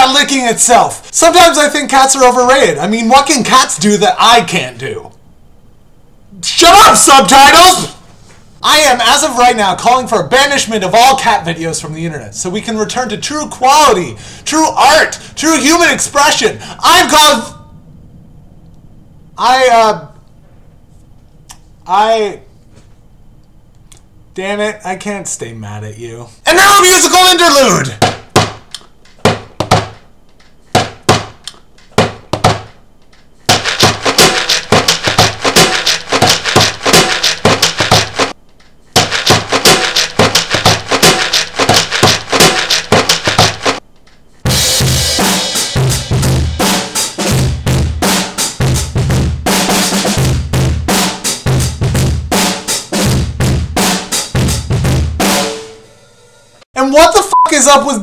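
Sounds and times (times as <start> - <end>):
deep drum thumps: 28.0 - 28.6, 29.2 - 30.0, 30.7 - 31.4, 32.0 - 32.8, 33.5 - 38.3, 39.0 - 43.8
hand drumming on plastic lids: 29.2 - 30.0, 30.8 - 32.8.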